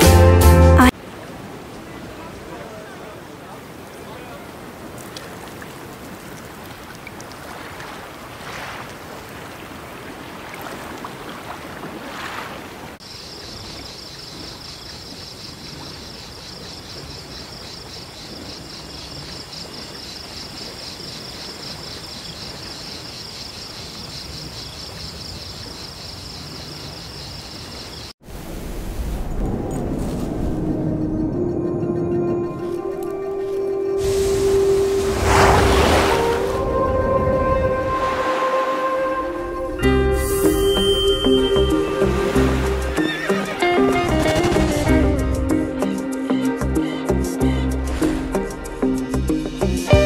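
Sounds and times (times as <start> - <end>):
waves washing in: 0.9 - 13.0, 28.2 - 31.0, 32.6 - 45.5.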